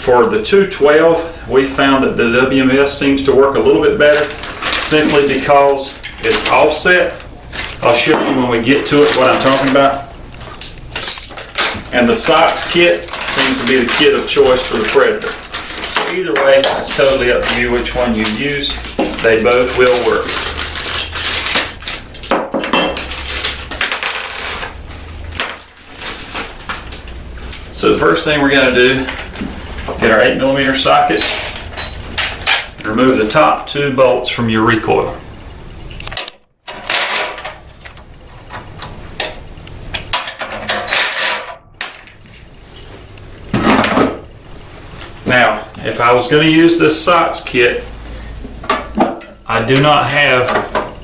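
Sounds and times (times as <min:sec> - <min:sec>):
plastic bag crinkling: 0:08.7 - 0:22.3, 0:25.0 - 0:27.4.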